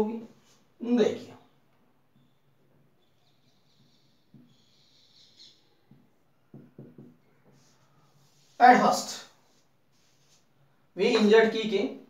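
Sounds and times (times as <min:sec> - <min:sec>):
marker squeaking on whiteboard: 0:01.4 - 0:10.6.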